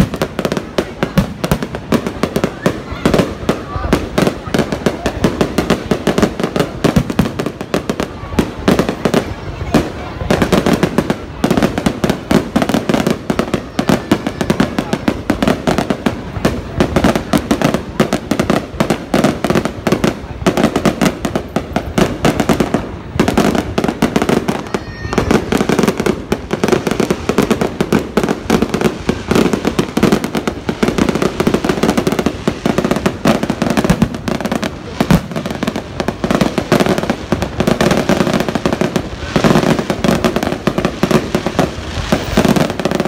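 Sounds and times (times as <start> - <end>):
fireworks bursting: 0.0 - 43.0.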